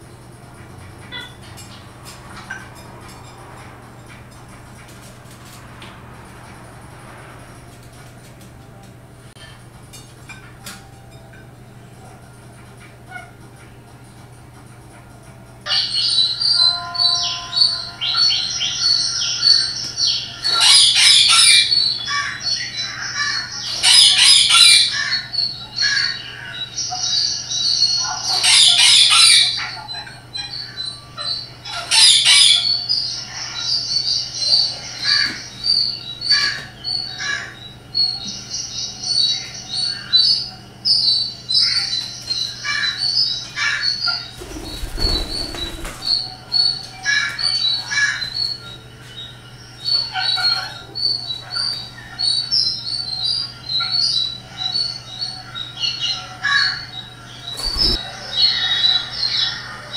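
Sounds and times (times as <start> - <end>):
parrot squawking: 15.7 - 33.9, 49.8 - 59.9
parrot chirping: 15.7 - 48.8, 49.7 - 59.9.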